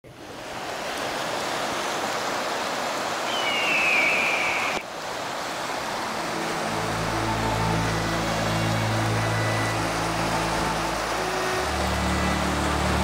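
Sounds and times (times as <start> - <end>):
river water rushing: 0.1 - 13.0
high bird cry: 3.2 - 4.8.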